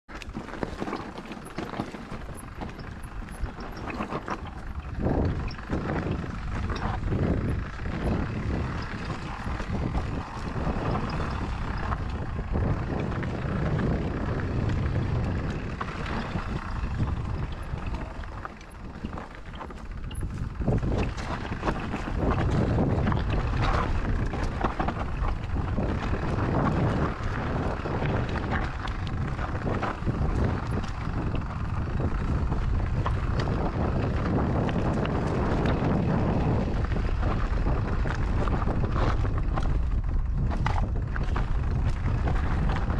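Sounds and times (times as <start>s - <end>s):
wind buffeting microphone: 0.1s - 42.9s
tyre rumble: 0.2s - 42.9s.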